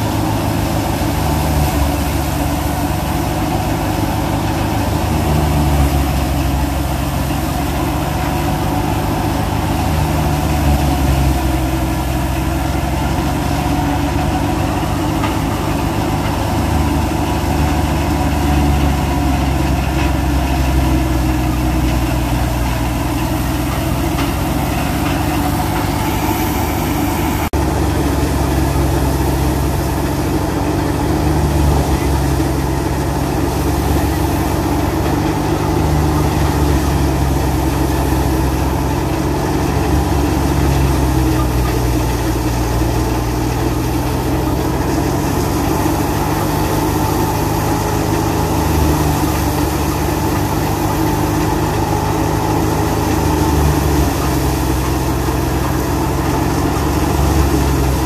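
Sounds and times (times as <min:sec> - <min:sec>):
thresher drum running: 0:00.0 - 0:58.0
tractor engine under load: 0:00.0 - 0:58.0.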